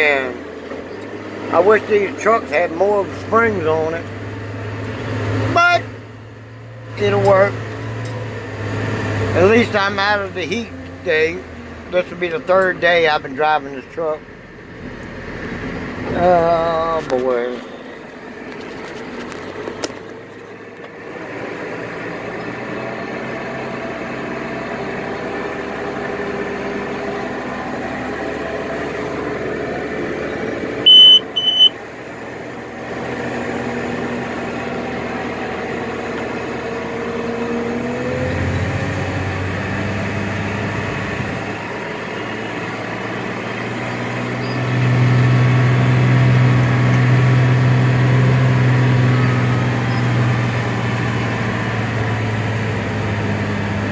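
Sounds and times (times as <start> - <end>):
truck diesel engine running: 0.0 - 53.9
short high beeps: 30.8 - 31.8.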